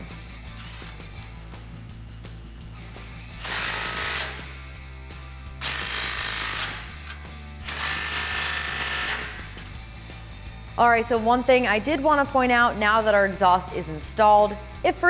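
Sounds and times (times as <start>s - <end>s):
cordless ratchet running: 5.6s - 9.6s.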